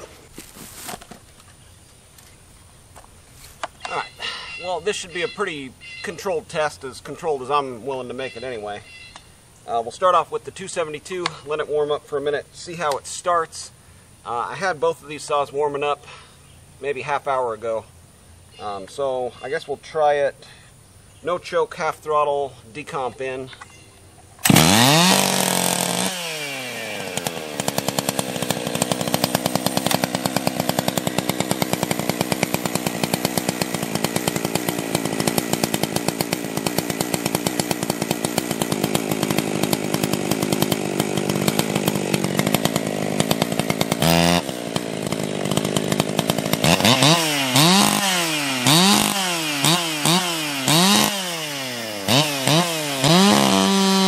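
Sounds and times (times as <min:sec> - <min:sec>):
chainsaw revving: 0:24.4 - 0:54.0
chainsaw starting and idling: 0:24.4 - 0:54.0.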